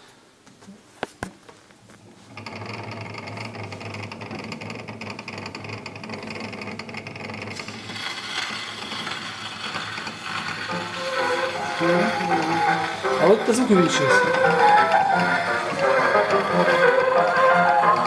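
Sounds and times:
recording hum with crackle: 0:00.0 - 0:13.1.

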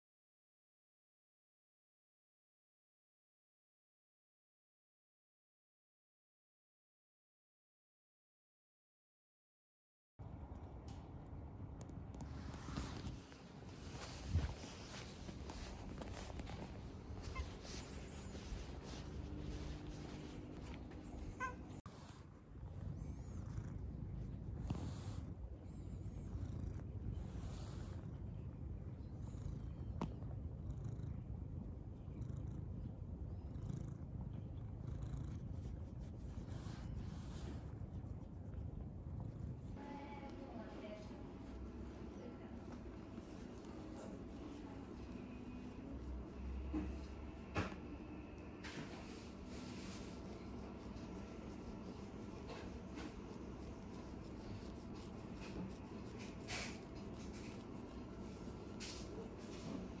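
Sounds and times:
faint room hum: 0:10.2 - 1:00.0
cat purring: 0:10.5 - 1:00.0
soft fabric rustles: 0:12.1 - 0:22.3, 0:48.6 - 1:00.0.

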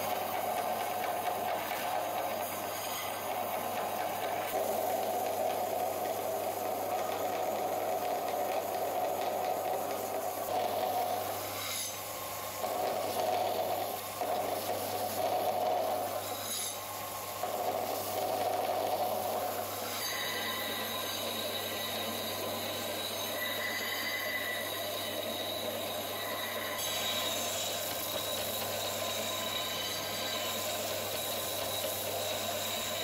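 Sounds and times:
metal grinding on belt grinder: 0:00.8 - 0:06.1, 0:10.5 - 0:33.0.

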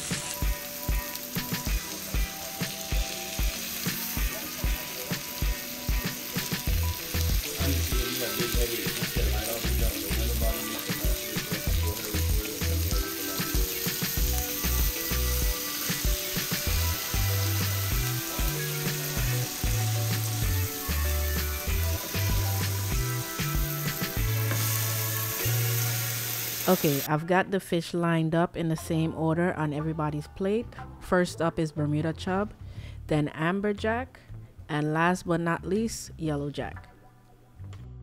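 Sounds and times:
background music with a beat: 0:00.0 - 0:26.4
fish sizzling in a pan: 0:00.0 - 0:27.1.

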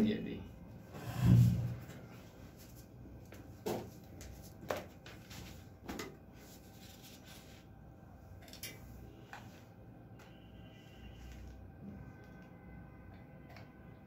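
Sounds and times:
soft handling knocks and rustles: 0:01.9 - 0:07.4.

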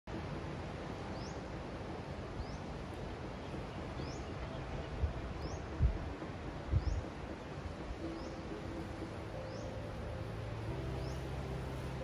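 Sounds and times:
wind buffeting microphone: 0:00.1 - 0:12.0
bird rising chirp: 0:08.0 - 0:12.0.

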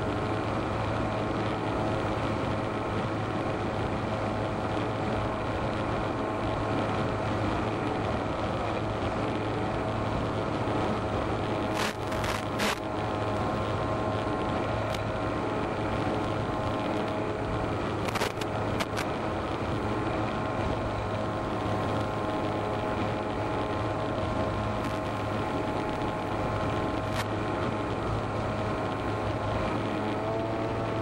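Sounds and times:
electric motor and propeller whine: 0:00.0 - 0:31.0
wind rush: 0:00.0 - 0:31.0.

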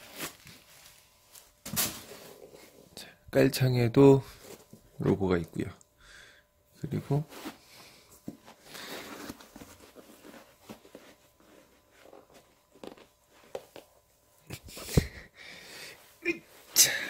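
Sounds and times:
sneaker handling rustling: 0:07.2 - 0:14.0.

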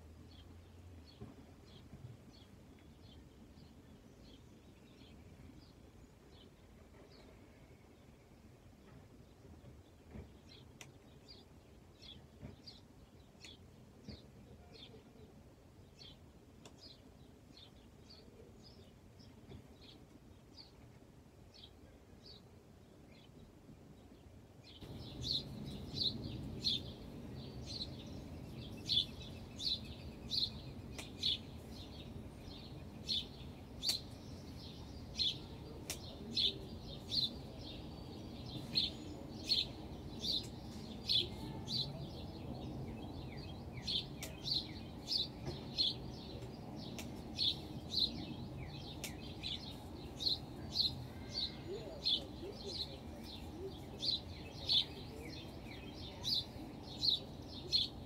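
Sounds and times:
bird chirping: 0:21.5 - 0:58.0
low background rumble: 0:24.8 - 0:58.0.

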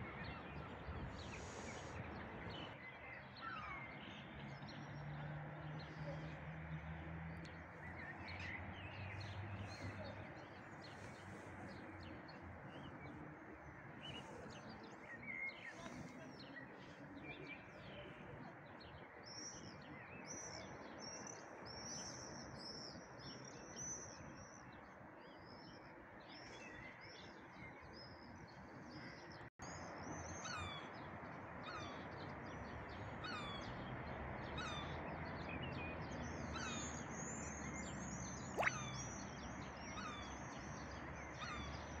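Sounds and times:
town background hum: 0:00.0 - 0:19.2.

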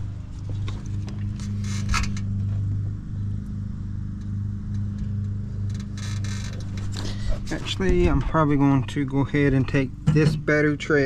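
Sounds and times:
low mechanical hum: 0:00.0 - 0:11.0
light clicks and rustles: 0:04.2 - 0:08.4.

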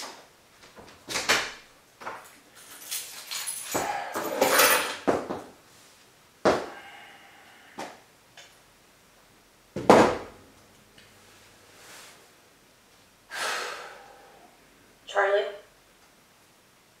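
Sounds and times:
objects knocking and thudding: 0:03.6 - 0:05.5, 0:06.4 - 0:06.8, 0:09.7 - 0:10.4.

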